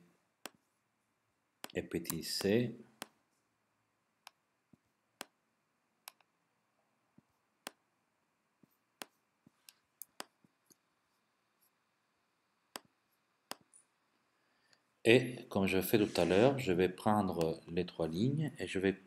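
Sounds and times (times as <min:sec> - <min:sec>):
computer mouse clicks: 0:01.6 - 0:03.1, 0:06.0 - 0:06.3, 0:09.0 - 0:10.8.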